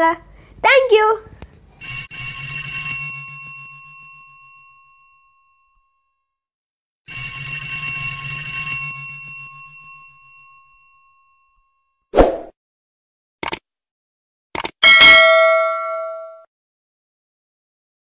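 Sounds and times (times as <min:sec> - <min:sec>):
bell ringing: 0:01.8 - 0:05.9, 0:14.8 - 0:16.5.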